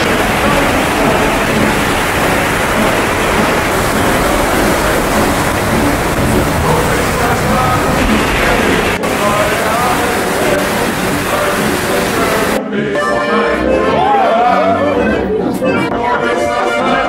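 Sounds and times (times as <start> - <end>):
mountain river rushing: 0.0 - 12.6.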